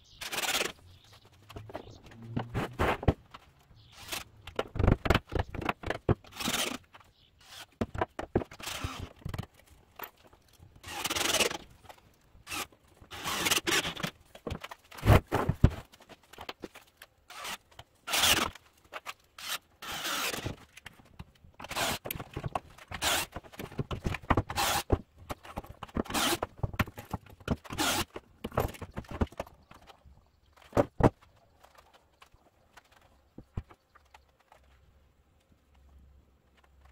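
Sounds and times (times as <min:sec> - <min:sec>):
drill scraping wood: 0:03.9 - 0:04.3, 0:06.3 - 0:06.8, 0:07.4 - 0:07.8, 0:08.6 - 0:09.1, 0:10.8 - 0:11.6, 0:12.4 - 0:14.1, 0:17.3 - 0:18.6, 0:19.4 - 0:20.6, 0:21.6 - 0:22.1, 0:22.9 - 0:23.4, 0:24.5 - 0:25.0, 0:26.0 - 0:26.5, 0:27.6 - 0:28.1.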